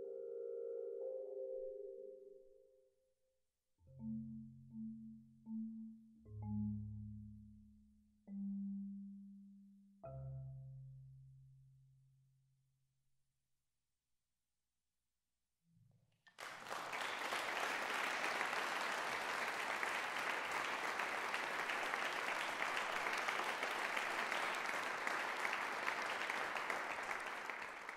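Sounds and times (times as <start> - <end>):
audience applause: 16.3 - 27.9.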